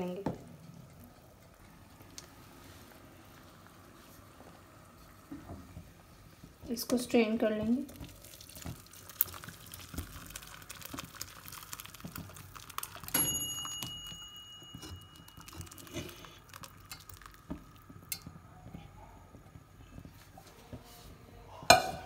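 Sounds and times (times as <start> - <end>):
soup pattering and splashing: 7.9 - 18.3.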